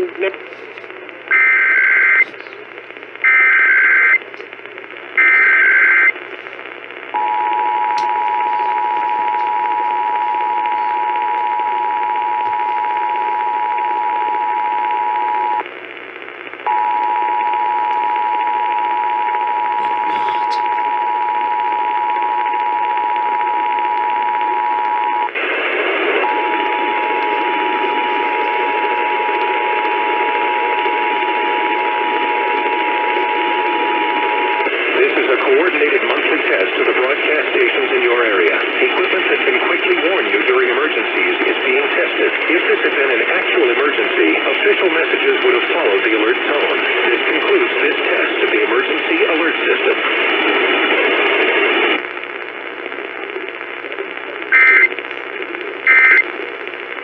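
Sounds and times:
radio static: 0.0 - 57.0
buzzy data screech: 54.5 - 54.9, 55.9 - 56.2
two-tone attention signal: 55.9 - 56.2.

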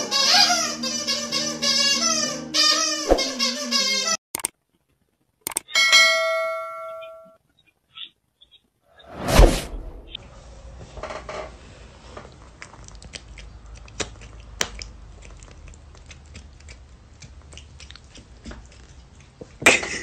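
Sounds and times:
loud thump: 9.2 - 10.2
cat chewing: 12.0 - 19.6.

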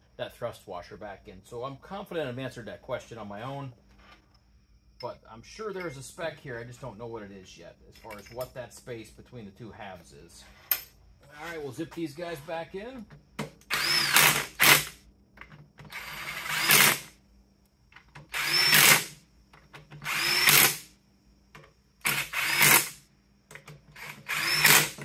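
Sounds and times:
power driver spinning bolts: 13.6 - 17.1, 18.1 - 20.8, 23.6 - 25.0.

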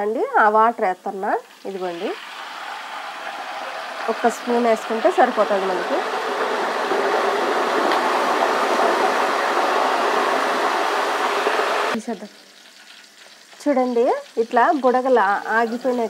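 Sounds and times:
potato slices sizzling in hot oil: 0.2 - 16.0.

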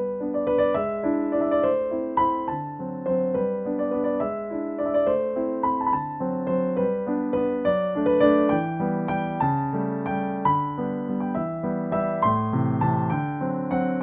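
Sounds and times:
piano melody: 0.0 - 14.0.

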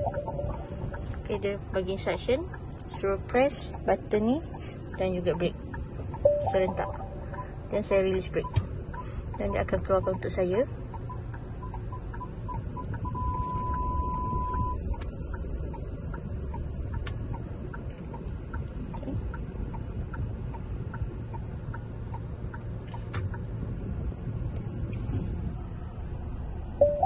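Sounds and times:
parking sensor beeps: 0.0 - 1.2, 6.1 - 10.4, 11.0 - 15.0, 26.8 - 27.0
low engine rumble: 0.0 - 27.0
turn signal ticking: 0.0 - 27.0.

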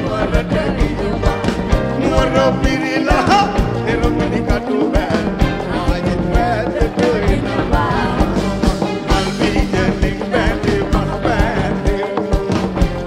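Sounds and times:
live pop band: 0.0 - 13.0
woman singing into microphone: 6.6 - 8.6.

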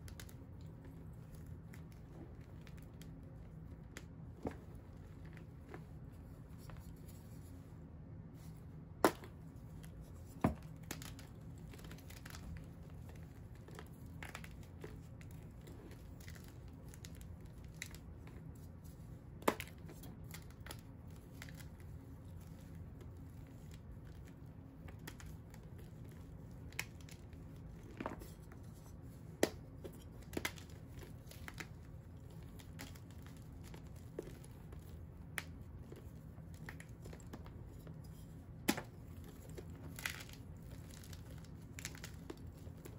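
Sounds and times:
fingers crumbling chalk: 9.0 - 42.9
chalk pieces snapping: 38.6 - 42.9.

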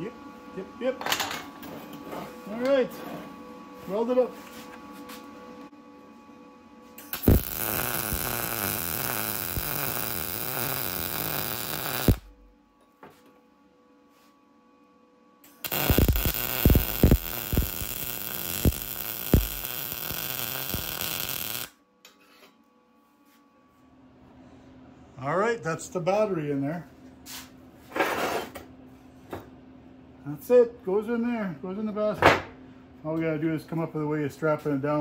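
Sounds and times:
arc welding crackling buzz: 7.0 - 12.5, 15.5 - 21.8.

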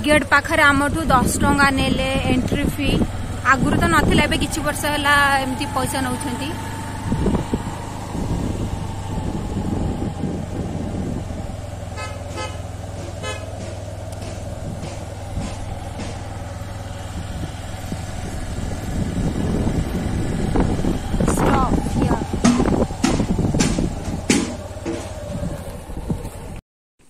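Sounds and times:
vehicle engine driving: 0.0 - 26.6
horn toots: 11.9 - 13.8.

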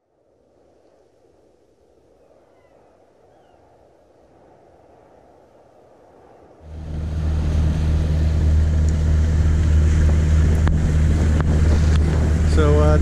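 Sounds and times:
wind and water rushing: 6.6 - 13.0
boat engine humming: 6.7 - 13.0.

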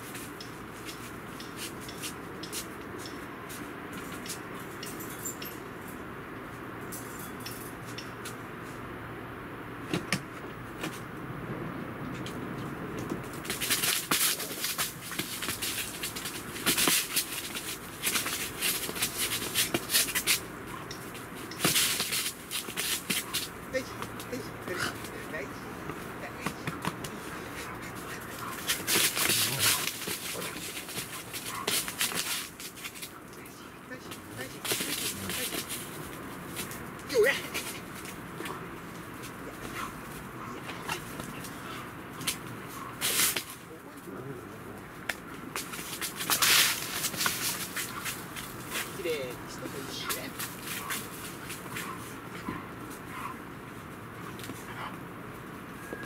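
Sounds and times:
dogs scrabbling and rustling: 12.1 - 44.1, 45.3 - 56.0.

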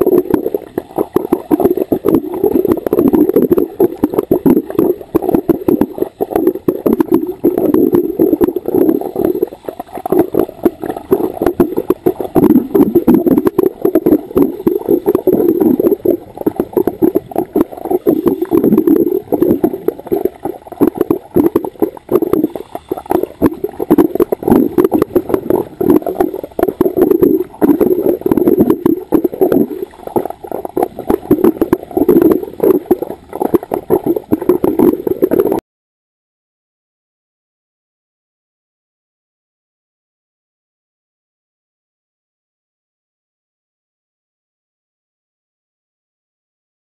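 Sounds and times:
underwater regulator bubbles gurgling: 0.0 - 35.6.

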